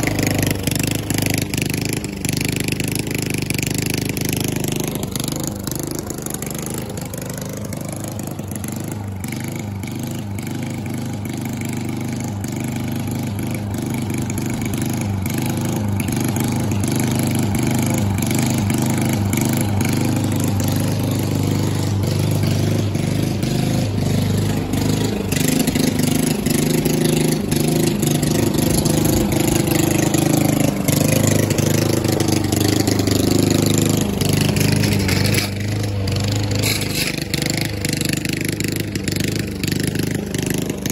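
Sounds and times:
lawn mower running: 0.0s - 40.9s.

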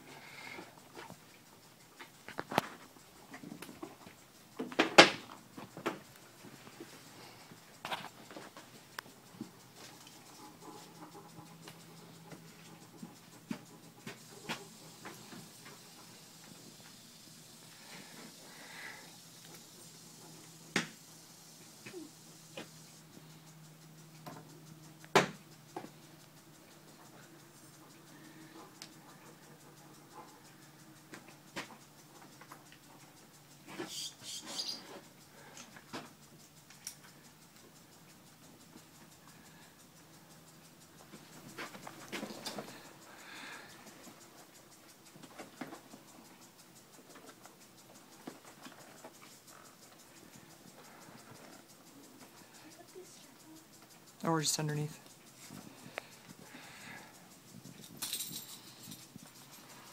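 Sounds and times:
bridle buckles clicking: 0.2s - 59.9s
metal jingle: 57.4s - 59.9s.

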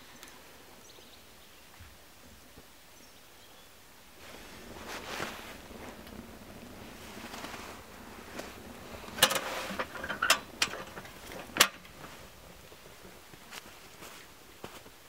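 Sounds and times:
metal clanks: 8.3s - 13.1s.

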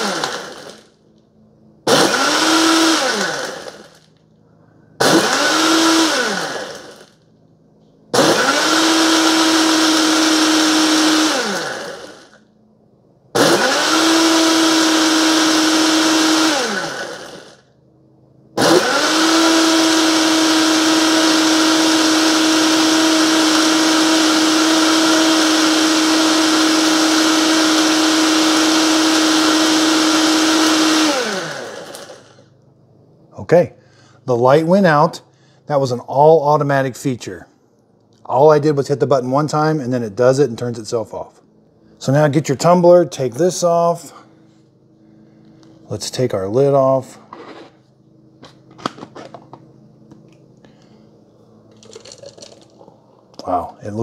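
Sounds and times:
blender crushing ice: 0.0s - 0.9s, 1.9s - 4.1s, 5.0s - 7.2s, 8.2s - 12.4s, 13.4s - 17.6s, 18.6s - 32.4s, 51.7s - 53.6s.

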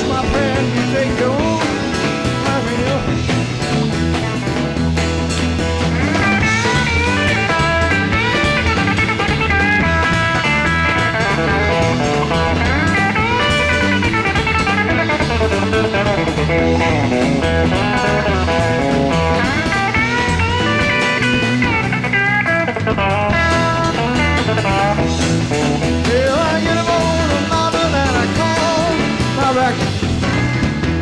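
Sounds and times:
bass line: 0.0s - 31.0s
drums: 0.0s - 31.0s
electric guitar lead: 0.0s - 31.0s.

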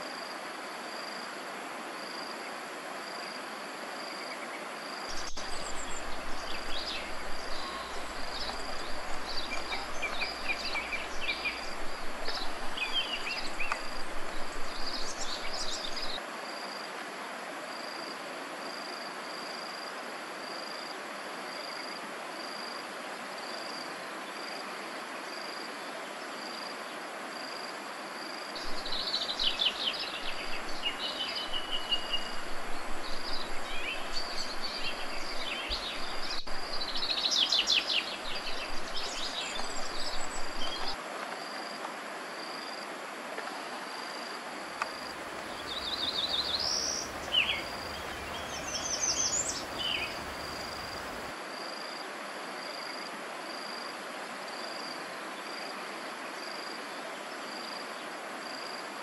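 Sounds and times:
insect chirping: 4.0s - 16.8s, 27.4s - 41.8s, 44.0s - 51.9s.

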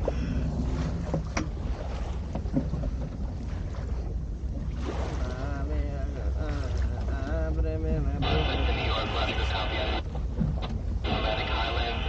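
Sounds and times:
faint voice: 11.1s - 12.0s.

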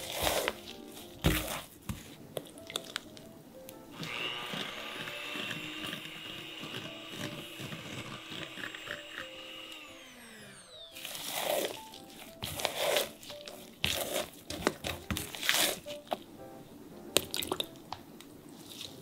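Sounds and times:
spatula scraping a bowl: 0.0s - 2.1s, 4.4s - 9.3s, 11.0s - 16.0s
electric hand mixer whining: 3.9s - 13.2s.

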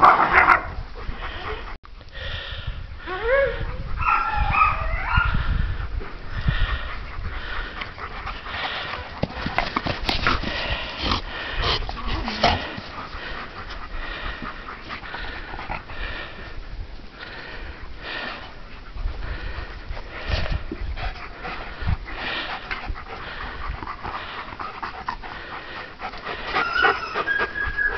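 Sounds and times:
dog breathing and snuffling: 6.0s - 27.9s.

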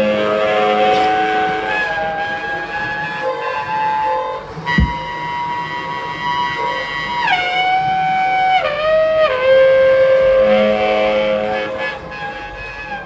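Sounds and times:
saxophone long held notes: 0.0s - 13.0s.

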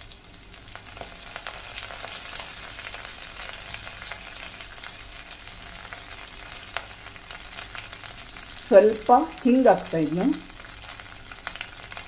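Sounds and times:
spices sizzling in hot oil: 0.0s - 12.0s.

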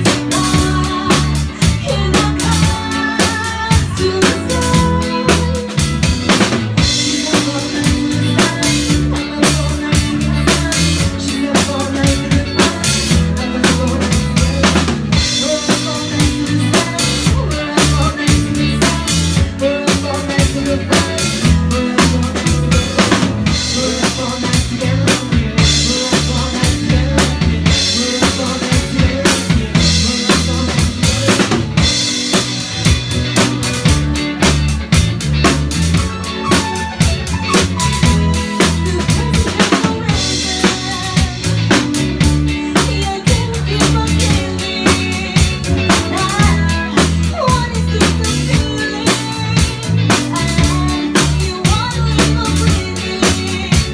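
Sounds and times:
bass line: 0.0s - 53.9s
drum kit beat: 0.0s - 53.9s
live band playing: 0.0s - 53.9s.

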